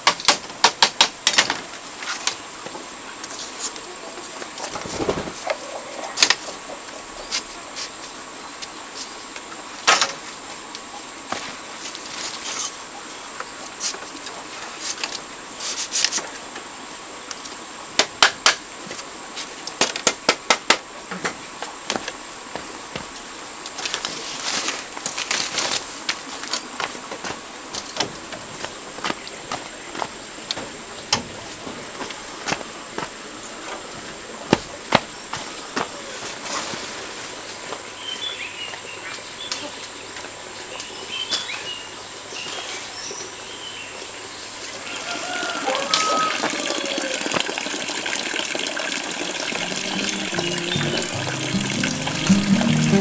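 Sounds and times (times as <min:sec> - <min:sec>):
bamboo strips clicking and tapping: 0:00.0 - 0:02.4, 0:17.3 - 0:19.1.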